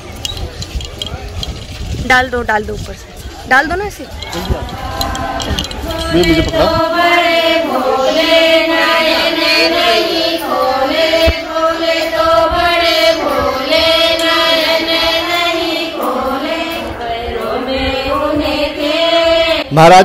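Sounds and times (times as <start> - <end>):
voices chanting: 3.4 - 20.0.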